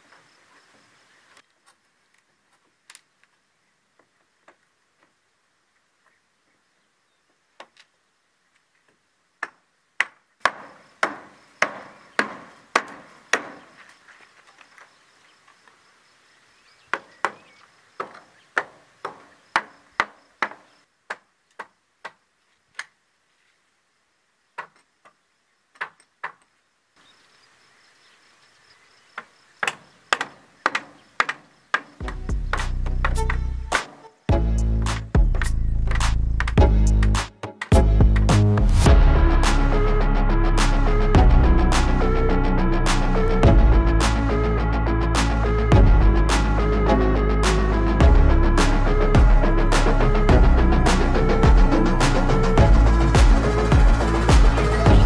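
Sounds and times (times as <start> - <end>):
hammer knocking on wood: 9.4 - 13.7, 16.9 - 22.2.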